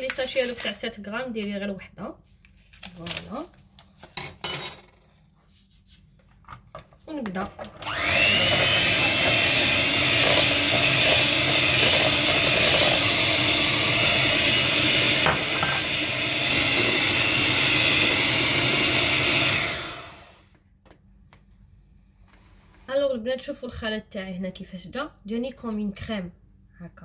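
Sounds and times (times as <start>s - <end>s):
electric mixer whining: 7.7s - 20.6s.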